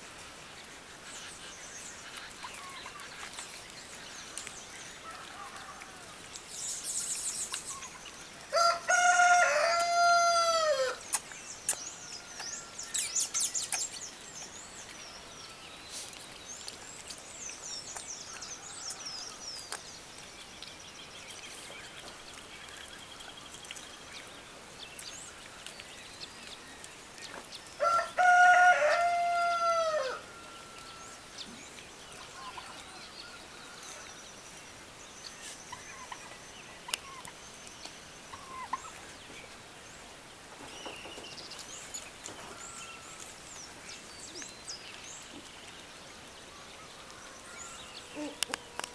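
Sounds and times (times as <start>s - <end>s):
small birds chirping: 0.0s - 48.9s
rooster crowing: 8.5s - 11.0s, 27.8s - 30.4s.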